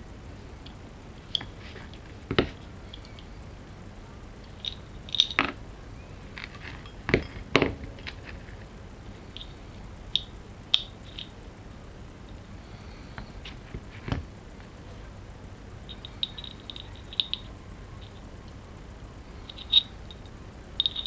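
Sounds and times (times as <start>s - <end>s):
pliers set down on workbench: 6.6s - 8.2s.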